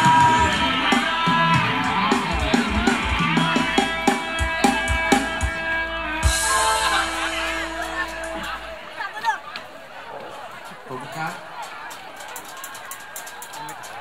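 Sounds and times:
drum strokes: 0.0s - 9.0s
live band dance music: 0.0s - 9.2s.

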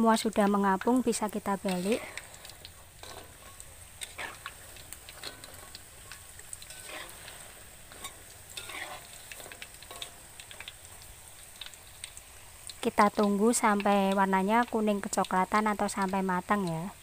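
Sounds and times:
chips deep-frying in oil: 0.0s - 17.0s
metal spatula scraping wok: 1.6s - 12.1s.

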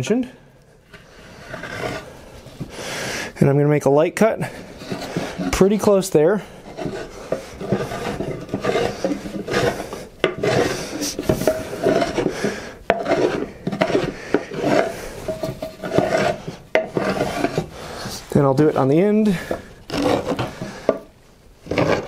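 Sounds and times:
marking gauge scratching wood: 0.9s - 2.0s, 4.7s - 6.0s, 6.6s - 18.7s, 19.4s - 21.1s, 21.7s - 22.0s.

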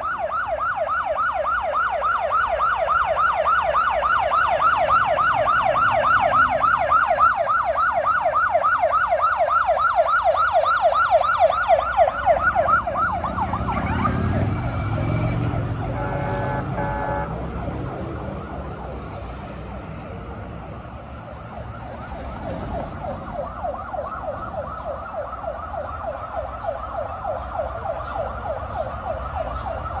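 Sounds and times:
ambulance engine rumble: 0.0s - 30.0s
emergency vehicle sirens yelping: 0.0s - 30.0s
short horn blast: 15.9s - 17.3s.

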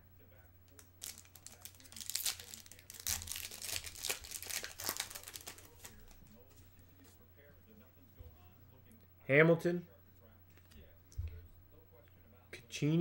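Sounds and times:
foil wrapper tearing and crinkling: 1.0s - 6.1s.

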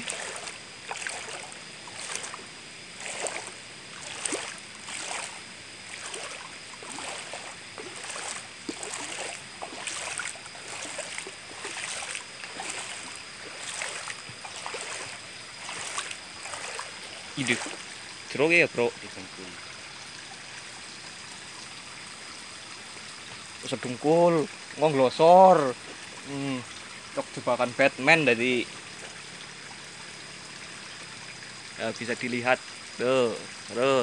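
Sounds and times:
feet splashing in river: 0.0s - 20.8s
low wash of water: 0.0s - 22.1s.

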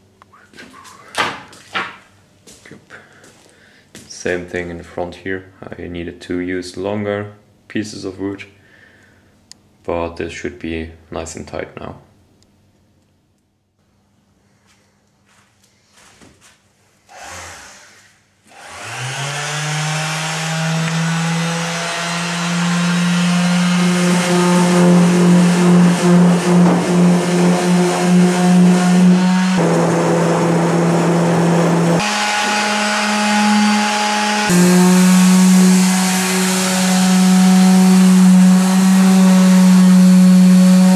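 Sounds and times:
sander motor whine: 18.5s - 40.9s.

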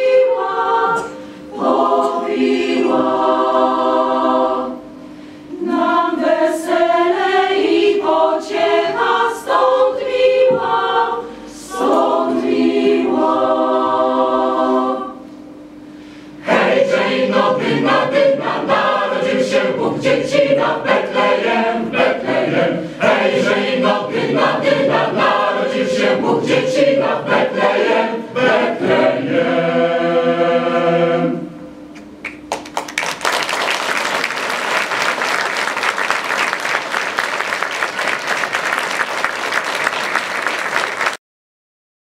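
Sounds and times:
mixed choir singing a carol: 0.0s - 4.9s, 5.5s - 15.3s, 16.4s - 31.6s
audience applauding: 32.2s - 41.2s.

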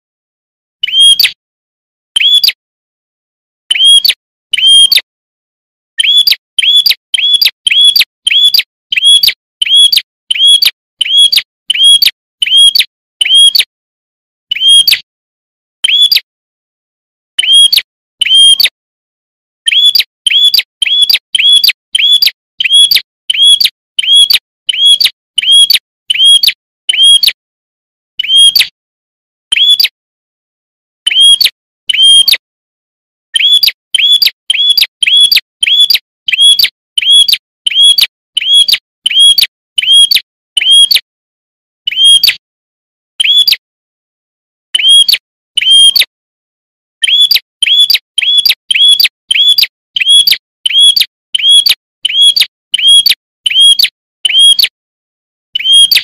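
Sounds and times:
bird whistled call: 2.2s - 2.6s, 6.0s - 12.6s, 15.8s - 16.2s, 19.7s - 26.4s, 33.4s - 40.8s, 43.2s - 43.6s, 47.0s - 53.7s.

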